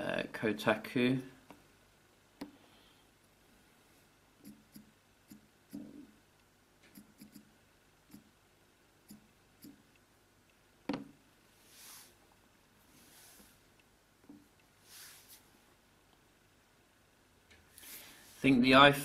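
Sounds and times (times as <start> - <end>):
fingertips tapping touchscreen: 4.4 - 6.1, 6.8 - 7.5, 9.0 - 11.1.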